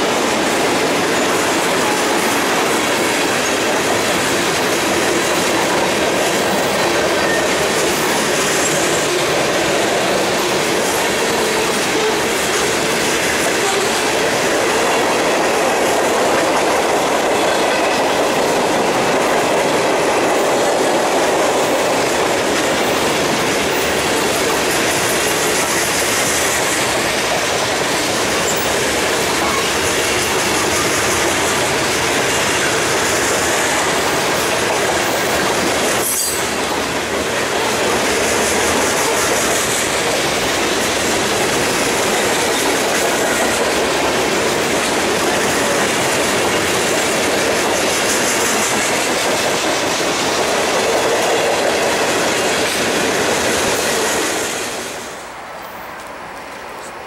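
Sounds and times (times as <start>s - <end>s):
train wheels rumbling on rails: 0.0s - 57.0s
high wheel squeal: 6.7s - 9.2s.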